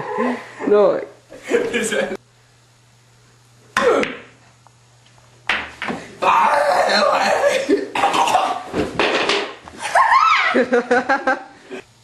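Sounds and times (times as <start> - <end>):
person coughing harshly: 3.8 - 4.2, 7.2 - 8.7.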